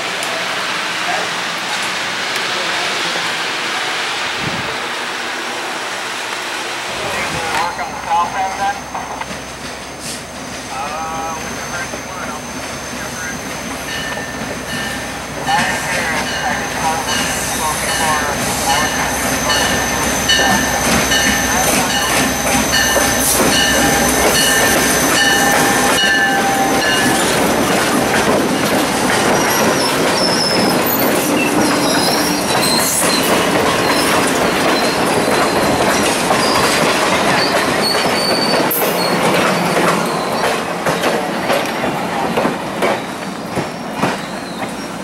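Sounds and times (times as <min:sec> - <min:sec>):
diesel locomotive engine: 0:00.0 - 0:45.0
rumble of train cars: 0:00.0 - 0:45.0
wheels squealing: 0:18.3 - 0:40.7, 0:42.8 - 0:45.0.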